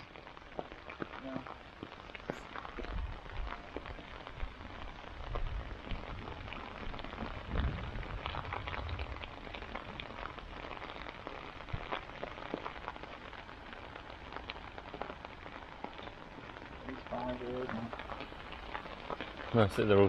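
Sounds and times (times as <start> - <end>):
light rain falling: 0.0 - 20.0
raindrops ticking: 0.0 - 20.0
low rumble: 4.3 - 12.0.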